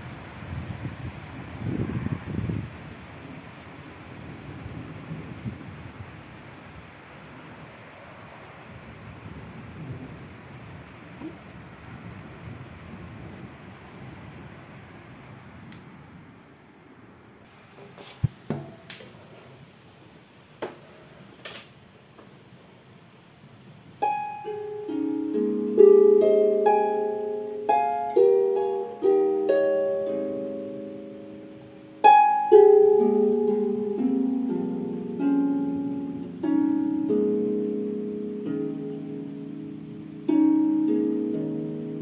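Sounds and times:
harp plucked notes and chords: 24.0s - 42.0s.

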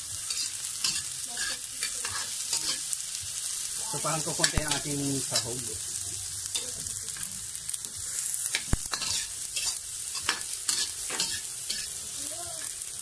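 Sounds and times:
food sizzling in a wok: 0.0s - 13.0s
metal spatula scraping pan: 0.2s - 2.8s, 8.5s - 12.0s.

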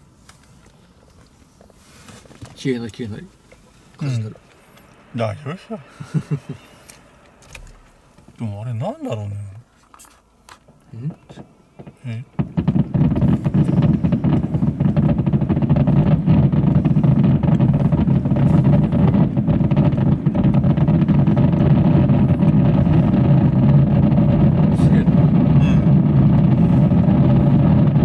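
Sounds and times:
fireworks booming and crackling: 4.0s - 9.6s, 10.6s - 28.0s.

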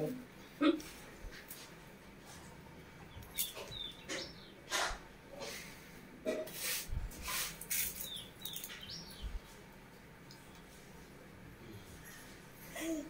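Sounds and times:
small birds chirping: 2.9s - 5.0s, 7.3s - 9.6s.

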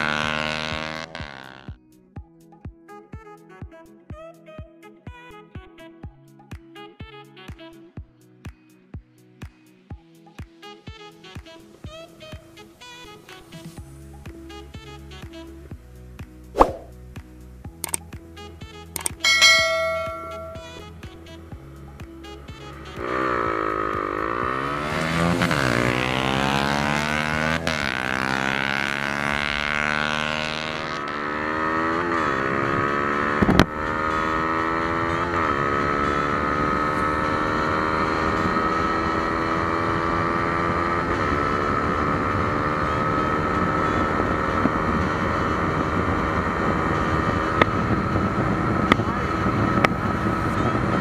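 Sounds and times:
motorcycle engine accelerating: 0.0s - 1.8s, 16.5s - 17.0s, 17.8s - 18.1s, 19.0s - 51.0s
sharp knock: 16.6s - 16.9s
wind rush on microphone: 45.0s - 51.0s.

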